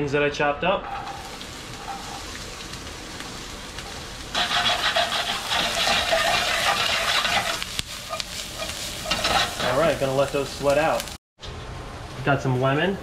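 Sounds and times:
onions sizzling in oil: 0.9 - 11.2.

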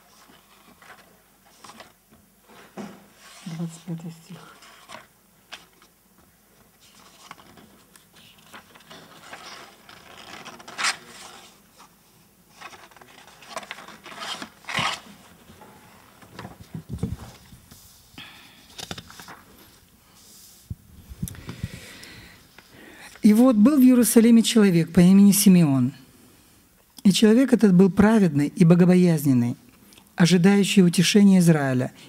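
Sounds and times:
book pages rustling: 0.0 - 21.6.

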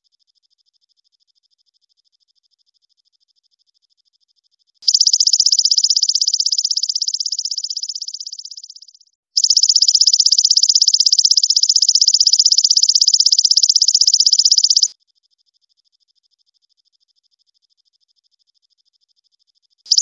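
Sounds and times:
katydid buzzing trill: 4.9 - 8.7, 9.4 - 14.9.

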